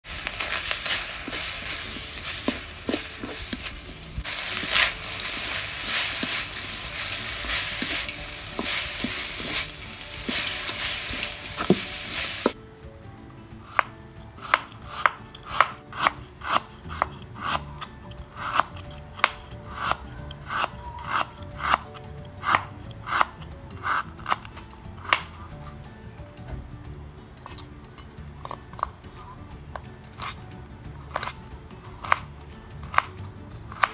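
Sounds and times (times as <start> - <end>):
meat sizzling in a wok: 0.0 - 12.6
wooden spatula scraping wok: 0.0 - 12.6
knife slicing on wooden board: 0.5 - 12.6.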